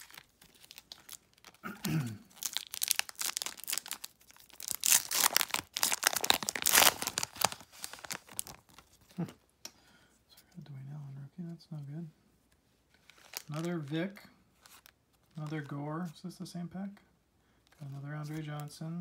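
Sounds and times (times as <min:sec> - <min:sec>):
card pack wrapper tearing and crinkling: 0:00.0 - 0:01.6, 0:02.2 - 0:09.3, 0:13.0 - 0:14.0, 0:14.6 - 0:15.7.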